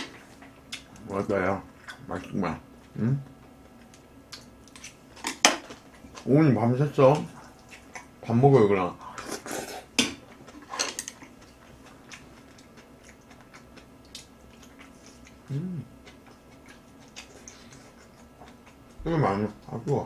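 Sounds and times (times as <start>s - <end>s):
person humming: 15.5s - 15.9s.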